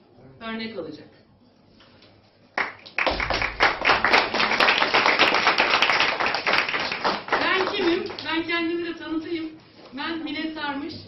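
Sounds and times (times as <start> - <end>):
group applauding: 2.5 - 8.8.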